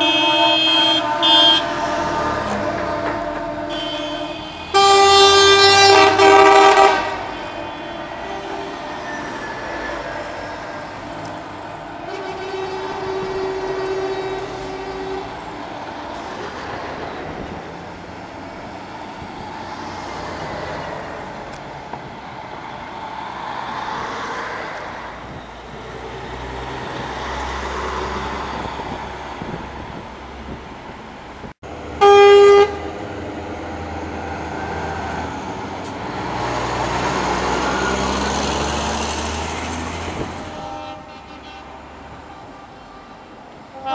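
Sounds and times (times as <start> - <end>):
loud short horn blast: 0.0 - 9.3, 32.0 - 33.0, 40.2 - 43.9
truck horn: 0.0 - 16.6, 31.9 - 33.1, 39.7 - 43.9
trucks driving past: 0.0 - 43.9.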